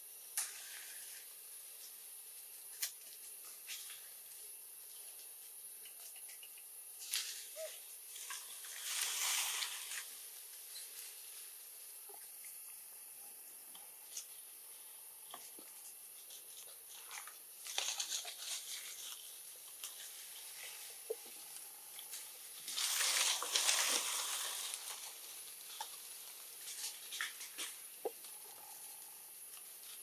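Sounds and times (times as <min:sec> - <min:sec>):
dry leaves rustling and crinkling: 0:07.0 - 0:11.8, 0:16.2 - 0:27.9.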